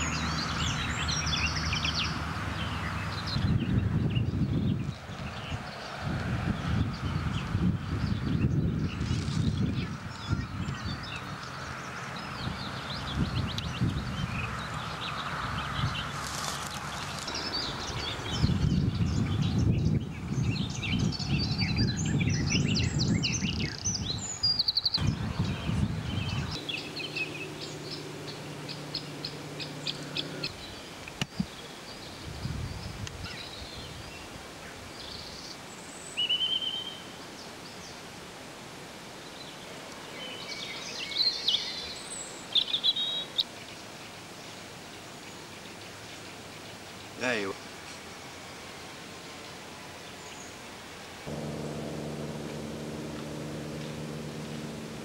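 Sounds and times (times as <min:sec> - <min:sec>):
birds singing and chirping: 0:12.3 - 0:30.8
low rumble: 0:51.3 - 0:55.0.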